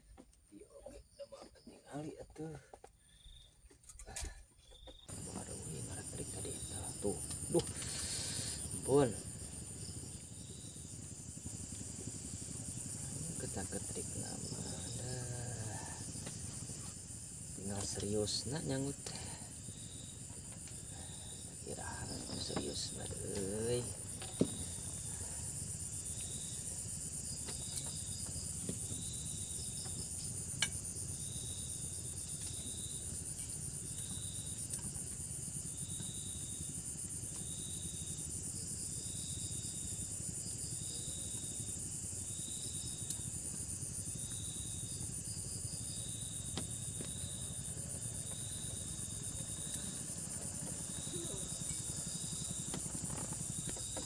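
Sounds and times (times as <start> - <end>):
high-pitched cricket trill: 0.0 - 54.0
short insect chirp: 0.5 - 54.0
low steady rumble: 5.1 - 34.0.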